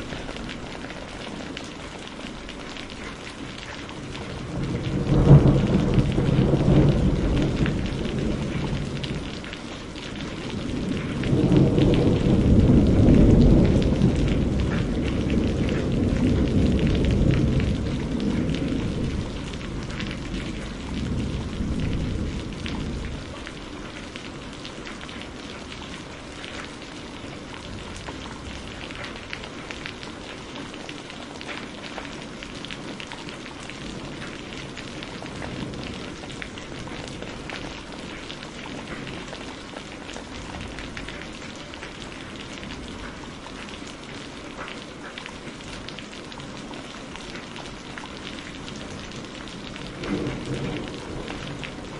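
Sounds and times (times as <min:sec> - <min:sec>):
steady rain pattering: 0:00.0 - 0:51.9
deep rumble of thunder: 0:03.4 - 0:30.0, 0:33.6 - 0:43.7, 0:48.4 - 0:51.9.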